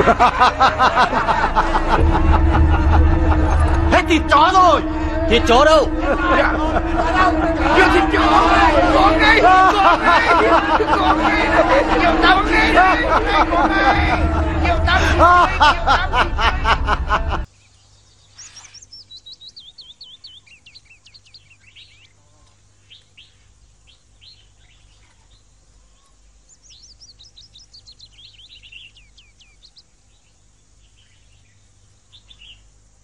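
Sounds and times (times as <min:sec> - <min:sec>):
man laughing loudly: 0:00.0 - 0:17.5
songbirds chirping: 0:17.4 - 0:33.0.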